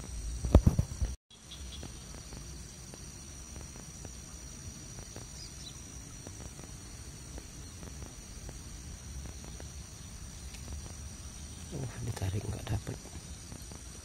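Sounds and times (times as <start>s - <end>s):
insects chirping chorus: 0.0s - 14.0s
faint ticks: 10.4s - 11.0s.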